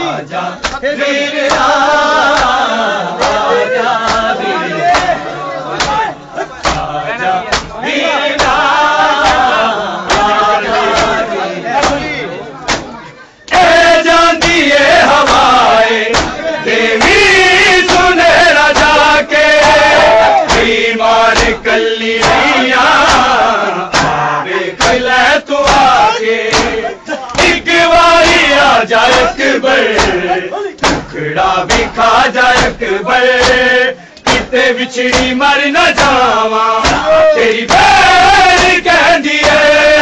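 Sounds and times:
men chanting a lament: 0:00.0 - 0:40.0
hands striking bare chests: 0:02.3 - 0:05.2, 0:05.8 - 0:06.9, 0:08.4 - 0:09.5, 0:10.1 - 0:11.2, 0:14.4 - 0:16.4, 0:17.8 - 0:21.6, 0:22.2 - 0:27.6, 0:28.2 - 0:32.8, 0:33.4 - 0:39.8.

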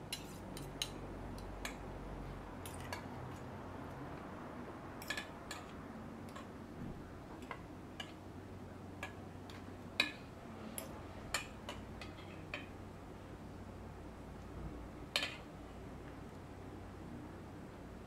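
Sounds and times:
utensils tapping on tableware: 0:05.0 - 0:06.5.

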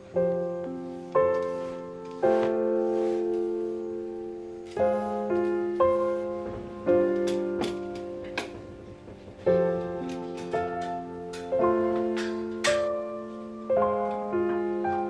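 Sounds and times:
gentle piano chords: 0:00.0 - 0:15.0.

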